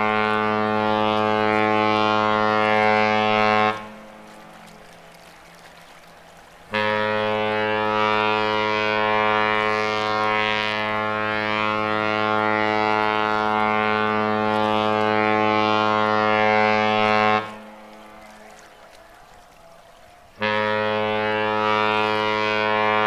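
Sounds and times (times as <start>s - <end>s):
ship's horn blast: 0.0s - 4.9s, 6.4s - 23.0s.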